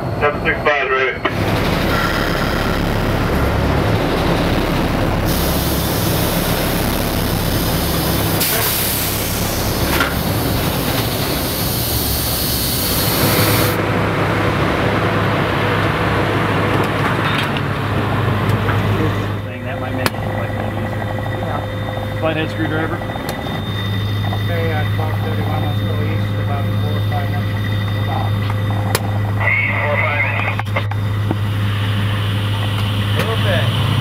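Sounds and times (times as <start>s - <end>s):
low engine drone: 0.0s - 34.0s
compressed air hissing loudly: 5.1s - 13.8s.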